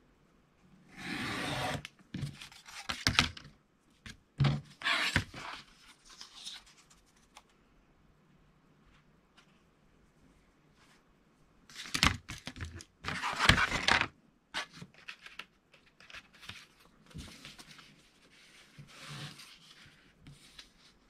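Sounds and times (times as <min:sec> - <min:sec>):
paper rustling: 0:11.7 - 0:21.0.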